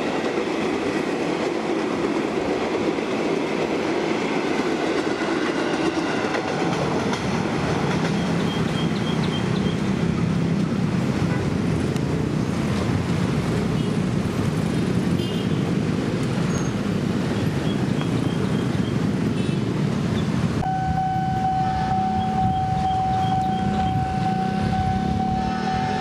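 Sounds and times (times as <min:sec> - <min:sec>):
diesel locomotive engine drone: 0:00.0 - 0:26.0
electric train running on rails: 0:00.0 - 0:26.0
steady high tone: 0:20.6 - 0:26.0.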